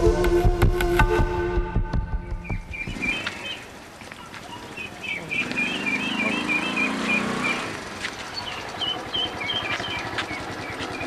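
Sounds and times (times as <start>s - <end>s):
bird chirping: 2.1s - 11.0s
small motorcycle engine: 5.0s - 11.0s.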